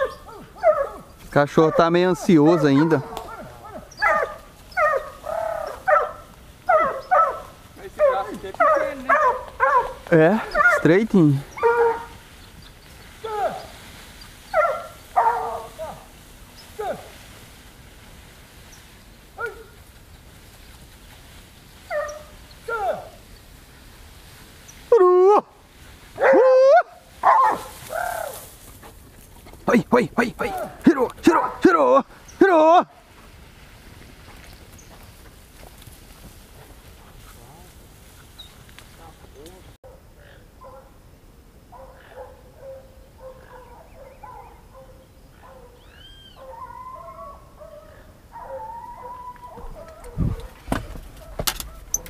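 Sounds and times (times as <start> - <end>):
dog whining and yelping: 0.0 - 1.1.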